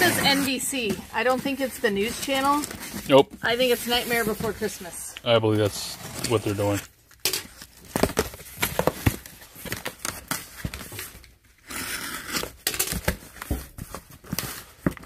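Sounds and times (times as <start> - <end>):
cardboard and tape tearing: 0.0 - 4.8, 5.6 - 15.0.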